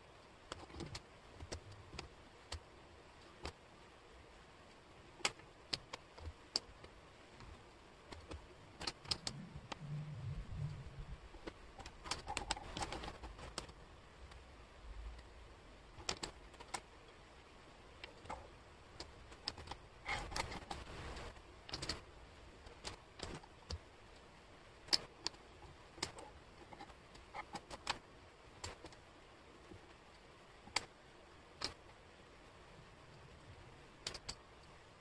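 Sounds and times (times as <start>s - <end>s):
wooden puzzle pieces clicking: 8.1s - 9.8s, 11.4s - 14.4s, 16.0s - 16.9s, 18.0s - 22.0s, 22.6s - 23.8s, 24.8s - 28.0s, 28.6s - 29.0s, 31.6s - 31.8s, 34.0s - 34.4s.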